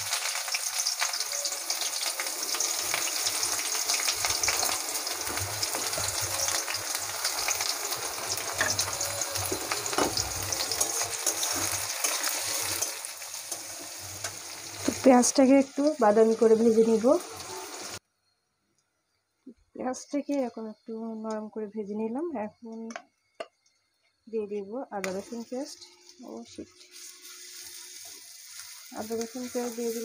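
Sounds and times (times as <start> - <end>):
onions sizzling in hot oil: 0.0 - 18.0, 24.3 - 30.0.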